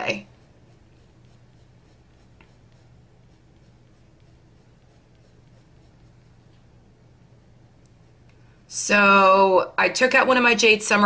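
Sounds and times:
pencil scratching on paper: 0.0 - 6.6.

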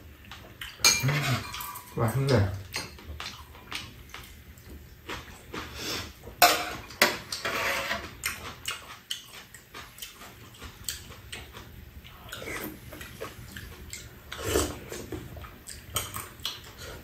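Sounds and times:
chewing: 0.2 - 6.3, 8.0 - 17.0
slurping soup: 7.3 - 8.2, 14.3 - 15.2.

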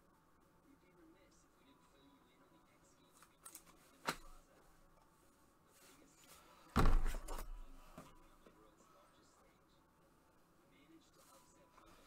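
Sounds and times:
heavy thump: 6.8 - 7.4.

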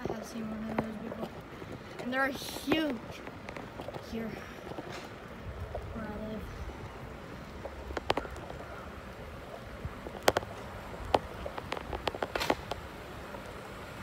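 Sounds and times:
bicycle tyres rumbling on concrete: 0.0 - 14.0
bicycle clicks and rattles: 6.6 - 14.0.

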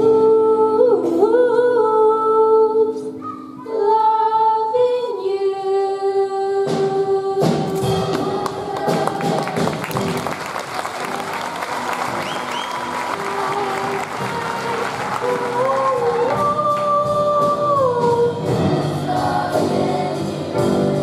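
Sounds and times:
girls singing duet: 0.0 - 9.8, 12.3 - 21.0
choir singing: 3.6 - 9.8, 11.6 - 16.9, 17.8 - 21.0
audience applause: 8.4 - 16.4.

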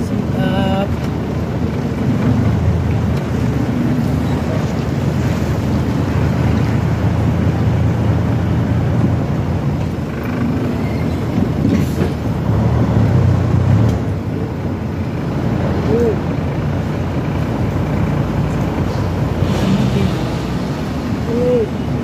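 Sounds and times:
road and wind noise: 0.0 - 22.0
truck engine hum: 0.0 - 22.0.

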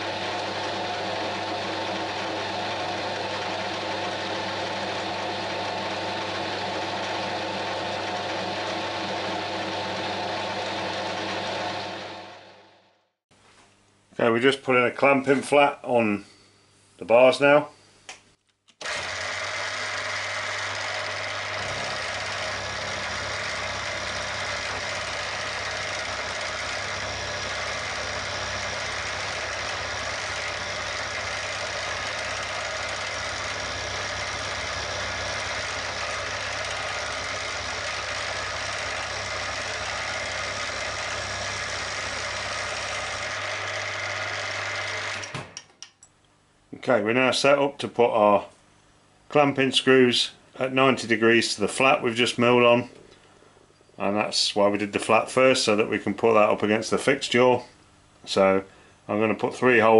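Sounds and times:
milling machine cutting metal: 0.0 - 12.6, 18.8 - 45.6
spindle motor hum: 0.0 - 13.0, 18.8 - 46.0.

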